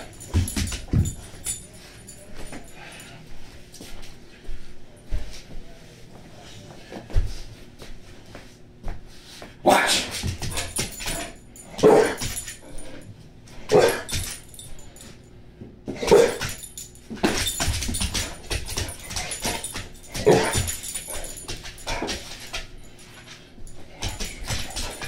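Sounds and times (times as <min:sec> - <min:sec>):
large dog barking: 0:11.8 - 0:12.2, 0:13.7 - 0:14.1.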